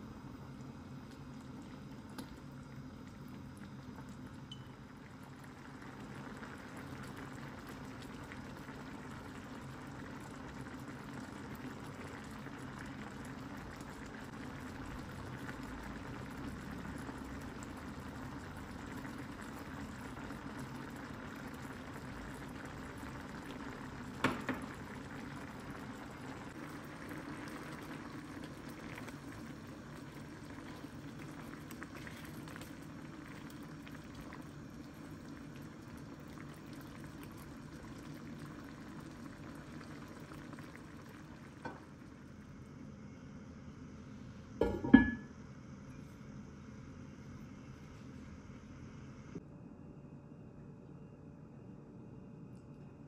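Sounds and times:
stew bubbling: 0:00.3 - 0:42.4.

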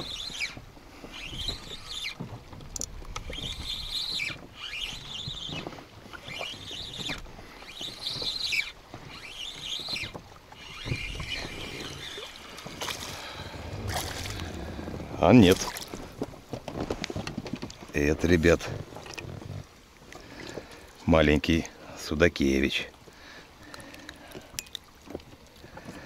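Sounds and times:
fishing reel whirring: 0:00.0 - 0:02.2, 0:02.8 - 0:15.3
wind and water rumble: 0:00.0 - 0:26.0.

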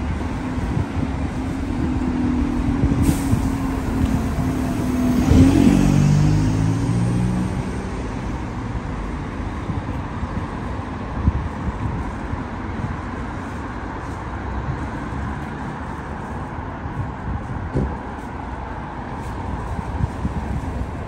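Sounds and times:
street traffic: 0:00.0 - 0:21.0
vehicle driving past: 0:02.5 - 0:08.7.

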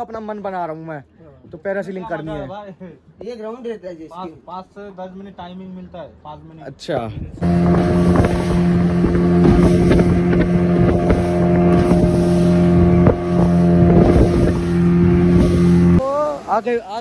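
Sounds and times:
motorboat engine droning: 0:07.4 - 0:16.5
water splashing against hull: 0:07.4 - 0:16.5.

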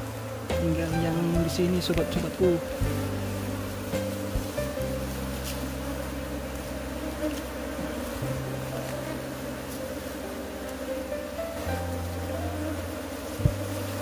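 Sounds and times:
honey bees buzzing: 0:00.0 - 0:14.0.

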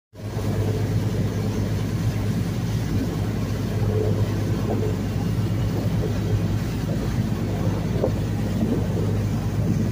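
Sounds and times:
boat engine running: 0:00.2 - 0:09.9
water rushing past hull: 0:00.2 - 0:09.9.

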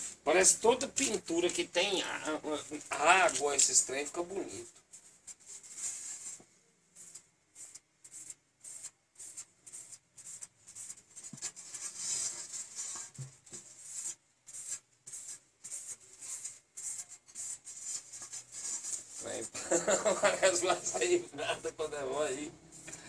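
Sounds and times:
paper rubbing on board: 0:07.0 - 0:23.0.

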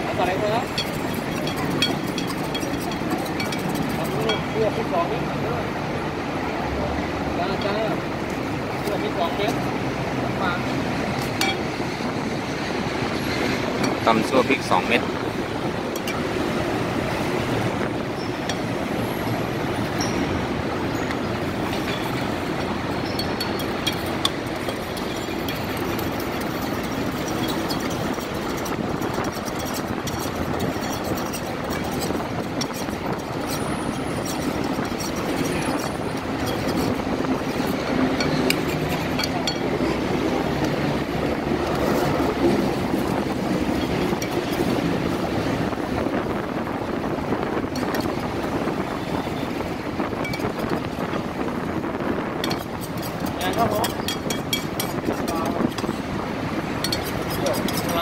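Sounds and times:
heavy road traffic roar: 0:00.0 - 0:58.0
kitchen utensils clinking: 0:00.2 - 0:04.9, 0:11.2 - 0:11.8, 0:21.0 - 0:41.0, 0:41.6 - 0:44.8, 0:50.1 - 0:51.2, 0:52.4 - 0:56.0, 0:56.7 - 0:58.0.

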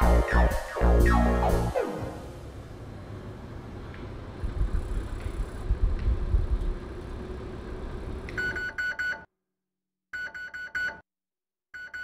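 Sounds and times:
microwave short high beeps: 0:08.4 - 0:09.2.

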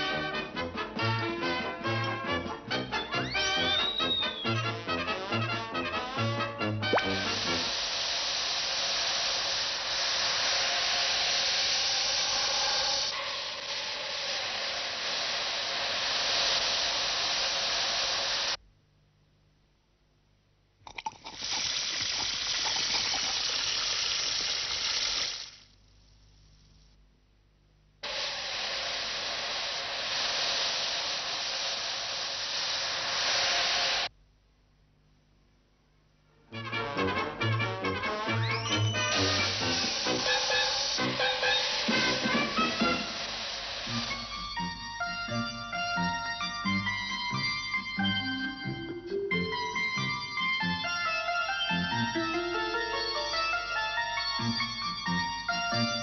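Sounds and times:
brass music: 0:00.0 - 0:07.7, 0:36.4 - 0:43.3
steady loud hiss: 0:00.0 - 0:18.6, 0:20.9 - 0:27.0, 0:27.9 - 0:34.2, 0:36.3 - 0:56.0
faint hum: 0:01.6 - 0:21.3, 0:25.5 - 0:56.0
rising whistle-like glide: 0:02.8 - 0:05.0, 0:07.0 - 0:18.6, 0:38.2 - 0:56.0.

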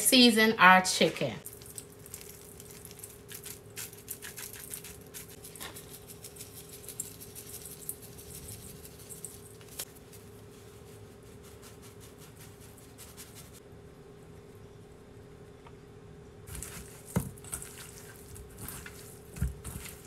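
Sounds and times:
faint steady hum: 0:00.0 - 0:20.0
seasoning pattering down: 0:01.4 - 0:09.9, 0:16.5 - 0:20.0
seasoning shakers ticking: 0:01.4 - 0:09.9.

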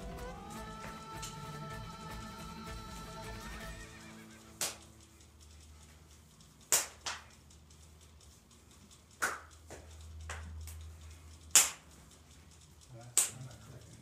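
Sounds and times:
hands slapping forearms: 0:04.6 - 0:04.9, 0:06.6 - 0:07.3, 0:09.2 - 0:10.5, 0:11.5 - 0:11.8, 0:13.2 - 0:13.4.

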